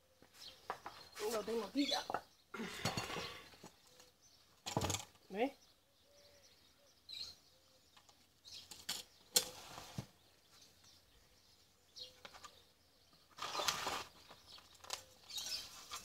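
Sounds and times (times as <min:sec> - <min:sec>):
plastic scoop scraping gritty substrate: 0:13.4 - 0:16.0.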